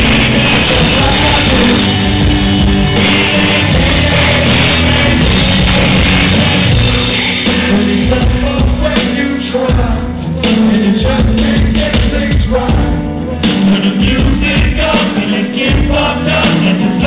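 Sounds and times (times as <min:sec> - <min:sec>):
live rap music through pa: 0:00.0 - 0:17.0.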